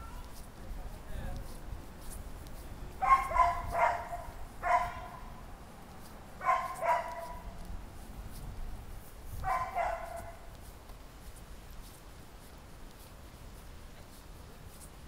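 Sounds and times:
dog barking: 0:03.0 - 0:05.3, 0:06.4 - 0:07.5, 0:09.4 - 0:10.4.

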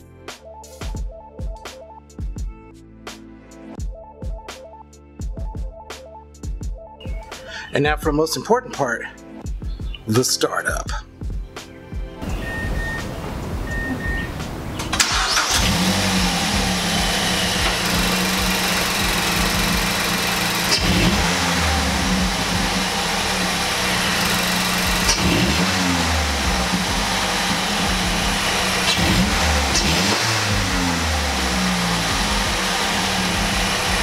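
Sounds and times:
car engine starting and idling: 0:12.2 - 0:34.0
engine throttle blips: 0:12.2 - 0:34.0.

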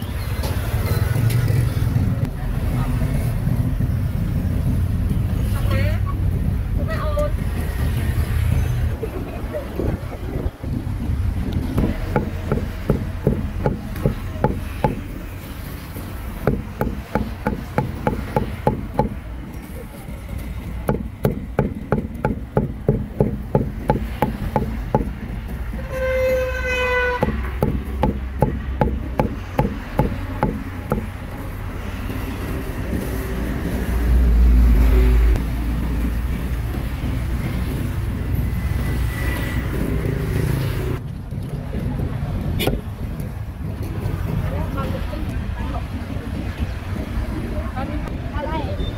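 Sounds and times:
passing vehicle rumble: 0:00.0 - 0:48.9
cleaver chopping meat on board: 0:11.8 - 0:15.0, 0:16.5 - 0:19.2, 0:20.9 - 0:25.2, 0:27.2 - 0:31.2
vehicle horn honking: 0:25.7 - 0:27.6.

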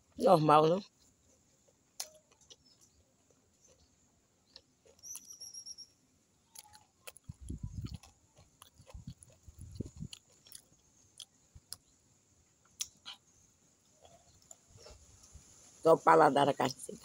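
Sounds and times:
person chewing food: 0:00.8 - 0:05.6, 0:06.4 - 0:12.0, 0:12.6 - 0:15.4.

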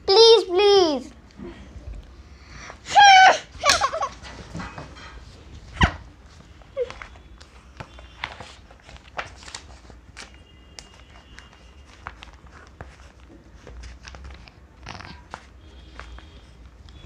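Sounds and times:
faint room hum: 0:00.0 - 0:17.0
paper sheets rustling: 0:03.6 - 0:17.0.

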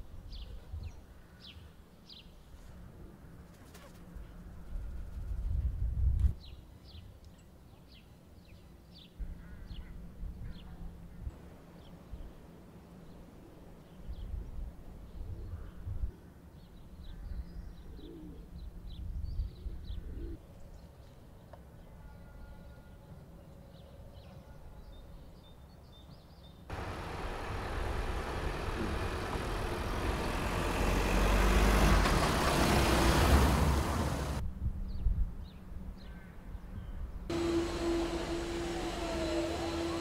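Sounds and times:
van driving past: 0:26.7 - 0:34.4, 0:37.3 - 0:40.0.

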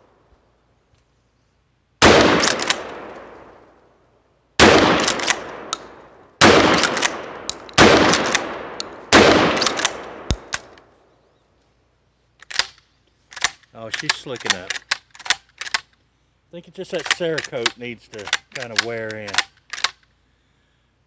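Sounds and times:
shotgun shots: 0:02.0 - 0:03.6, 0:04.6 - 0:10.8.

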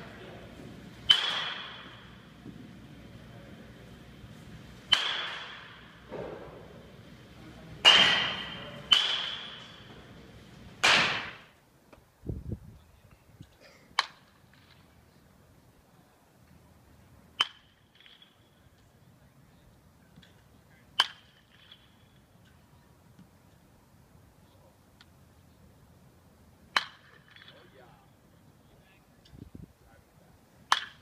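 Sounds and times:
baseball bat striking balls: 0:00.0 - 0:11.6, 0:14.0 - 0:14.8, 0:17.4 - 0:18.5, 0:20.2 - 0:22.6, 0:26.7 - 0:27.7, 0:30.7 - 0:31.0.

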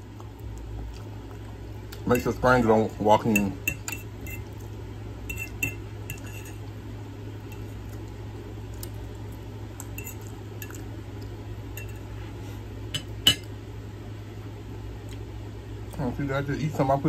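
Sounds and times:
steady low hum: 0:00.0 - 0:17.0
fork clinking on ceramic plate: 0:03.3 - 0:04.5, 0:05.3 - 0:06.6, 0:10.0 - 0:10.8, 0:11.8 - 0:12.0, 0:13.0 - 0:13.5.

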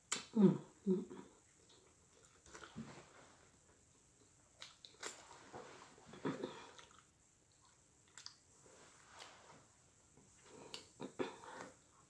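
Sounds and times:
chewing with wet smacks: 0:01.4 - 0:03.0, 0:04.2 - 0:05.3, 0:06.2 - 0:08.5.

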